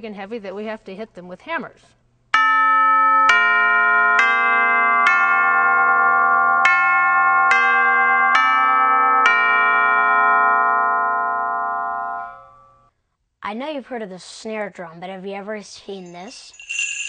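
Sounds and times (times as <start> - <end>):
tubular bells struck with hammers: 2.4 - 12.8.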